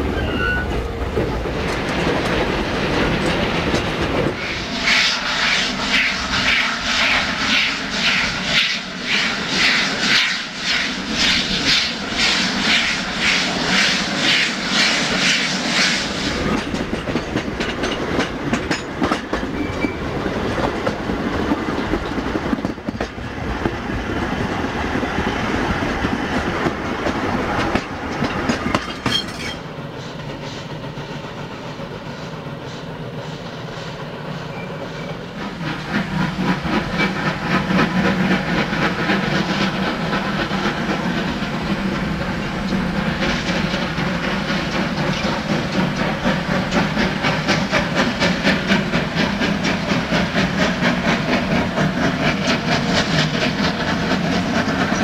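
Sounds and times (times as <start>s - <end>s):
steam locomotive exhaust beating: 0.0s - 29.1s, 29.8s - 55.0s.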